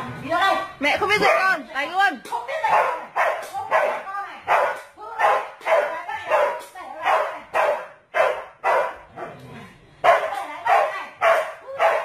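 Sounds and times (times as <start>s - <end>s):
dog barking: 2.7s - 9.4s, 10.0s - 12.0s.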